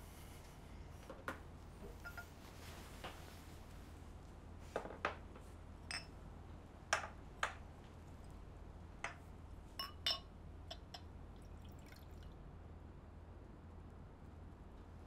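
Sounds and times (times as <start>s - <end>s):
glassware clicking and tapping: 2.0s - 2.3s, 5.9s - 6.1s, 9.8s - 11.1s
ringing glass clinks: 2.0s - 2.3s, 5.9s - 6.1s, 9.8s - 10.9s.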